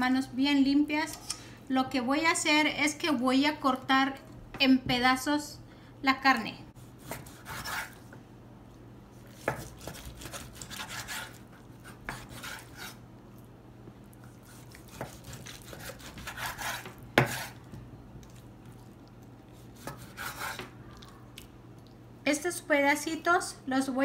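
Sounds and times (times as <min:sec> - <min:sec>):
knife scraping through meat: 0:06.8 - 0:08.0, 0:09.2 - 0:13.0, 0:14.2 - 0:17.6, 0:19.6 - 0:20.7.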